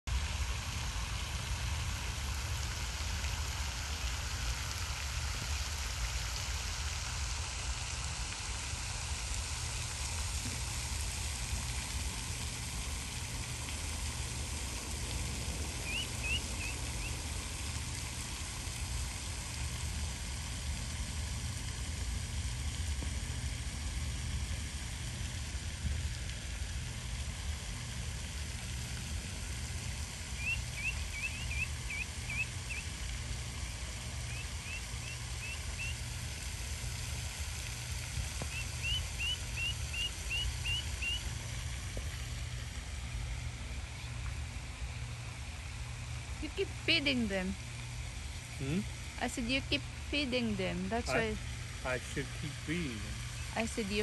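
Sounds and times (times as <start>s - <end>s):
outdoor hiss: 0.1s - 54.0s
bird chirping: 15.8s - 17.1s, 30.4s - 32.8s, 34.3s - 35.9s, 38.5s - 41.2s.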